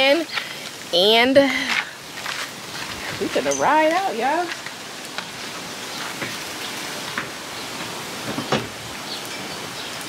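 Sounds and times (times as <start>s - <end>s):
steady outdoor hiss: 0.0s - 10.0s
thump on aluminum boat: 8.3s - 8.8s.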